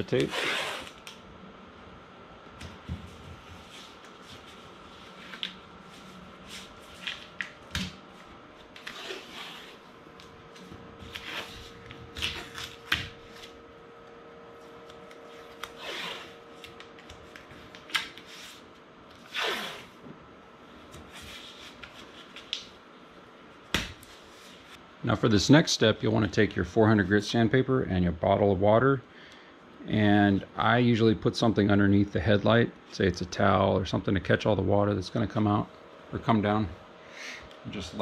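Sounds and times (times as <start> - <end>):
tape ripping and rubbing: 0.1 - 1.2, 8.7 - 9.8, 11.0 - 13.6, 15.0 - 18.6, 19.2 - 20.0.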